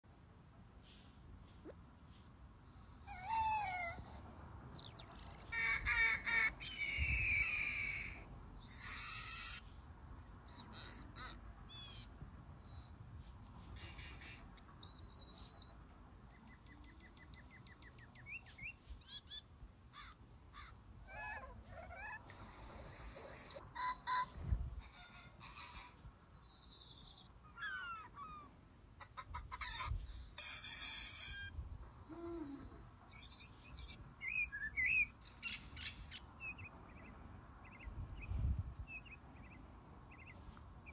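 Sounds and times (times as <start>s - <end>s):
recorded bird calls from speaker: 4.7s - 9.7s, 23.2s - 28.5s, 29.1s - 40.9s.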